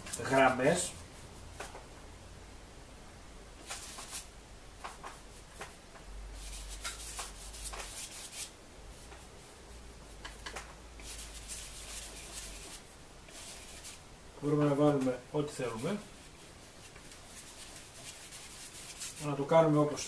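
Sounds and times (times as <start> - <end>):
paintbrush scrubbing canvas: 3.6 - 4.3, 6.4 - 9.2, 11.0 - 14.0, 15.5 - 19.8.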